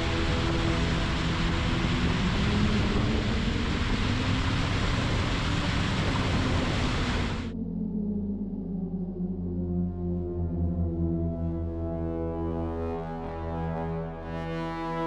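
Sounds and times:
rush of water and wind: 0.0 - 7.5.

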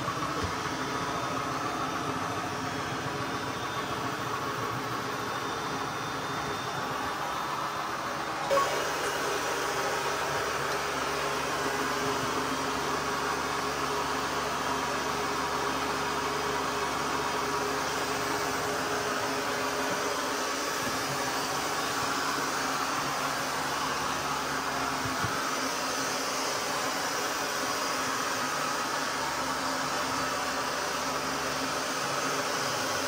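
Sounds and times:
robot vacuum motor whirring: 0.1 - 12.4.

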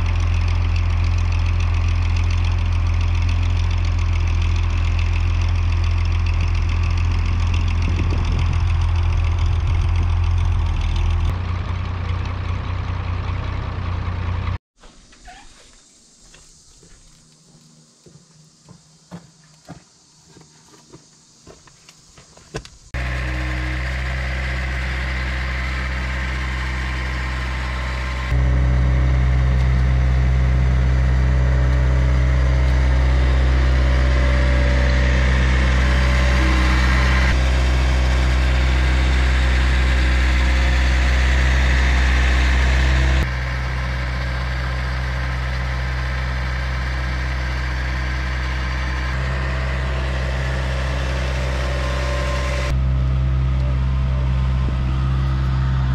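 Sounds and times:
loader engine running: 0.0 - 14.6, 22.7 - 55.9.

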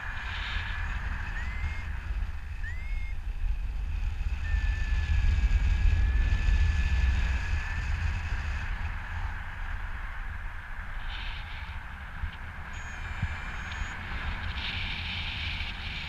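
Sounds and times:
wind buffeting microphone: 0.0 - 16.0
thin high tone rising: 0.2 - 3.2, 12.7 - 14.6.

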